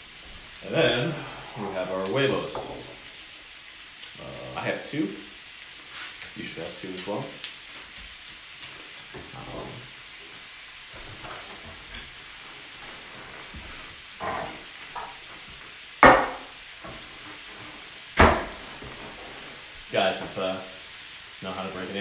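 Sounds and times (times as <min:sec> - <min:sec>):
bacon sizzling in pan: 0:00.0 - 0:22.0
sharp knocks: 0:16.0 - 0:16.5.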